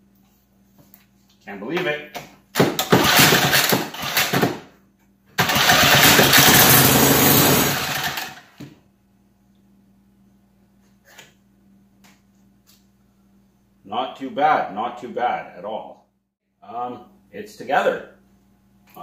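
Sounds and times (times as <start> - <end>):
snowblower engine running: 3.0 - 4.3, 5.4 - 8.4.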